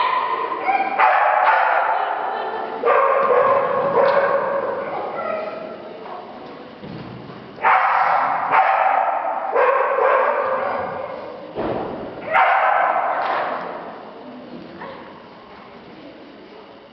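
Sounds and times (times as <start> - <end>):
dog barking with echo: 0.0 - 2.1, 2.8 - 5.5, 7.6 - 11.2, 12.3 - 13.2.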